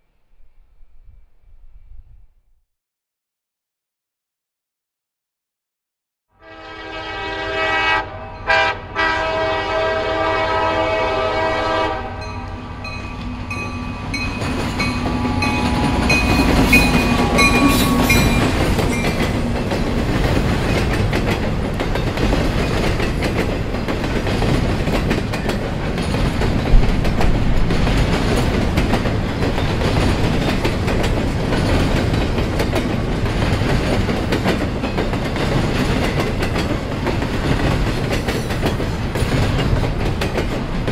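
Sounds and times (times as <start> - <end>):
locomotive air horn blasts: 6.4 - 14.2, 14.9 - 18.6
locomotive engines passing: 10.3 - 40.9
train wheels clattering: 12.8 - 40.9.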